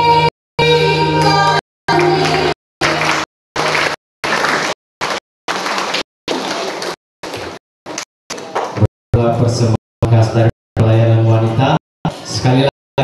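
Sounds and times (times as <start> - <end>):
music with singing: 0.0 - 3.0.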